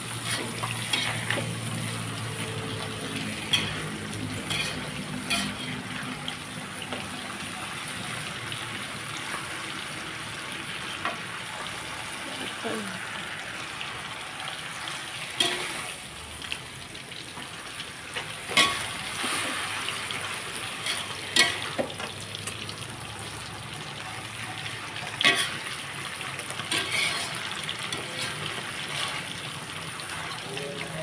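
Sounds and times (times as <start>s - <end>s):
vegetables sizzling in a wok: 0.0s - 31.0s.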